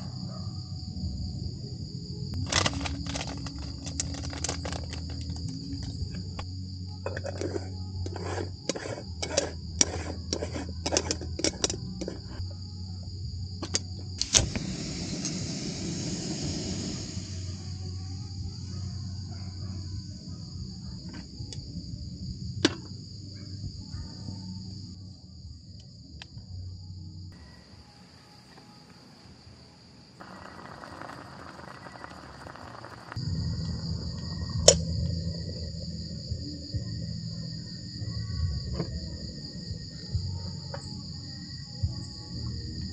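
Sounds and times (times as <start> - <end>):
lo-fi background music: 0.0 - 32.0, 33.2 - 42.9
crickets chirping: 0.0 - 42.9
gas stove click and hiss: 14.2 - 17.7.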